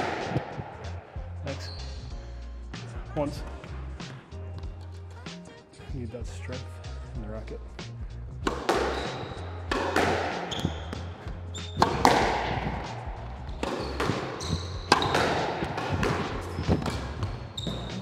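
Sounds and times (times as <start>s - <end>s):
squash ball hitting rackets and walls: 0.0s - 1.1s, 8.4s - 18.0s
shoes squeaking on floor: 1.5s - 2.1s, 8.5s - 18.0s.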